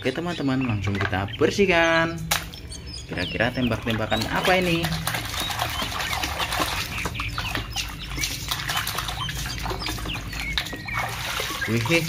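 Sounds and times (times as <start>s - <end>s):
water dripping: 0.9s - 12.0s
water splashing in a tub: 3.6s - 12.0s.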